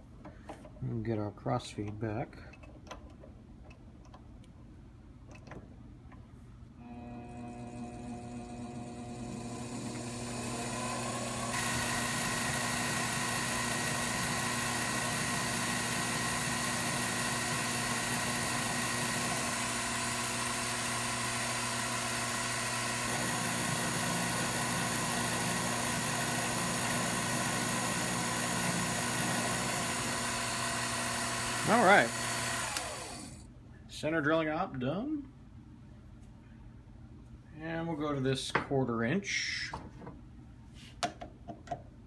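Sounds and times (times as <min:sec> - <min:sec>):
drill cutting into metal: 0:06.8 - 0:33.4
lathe motor hum and whine: 0:06.8 - 0:33.4.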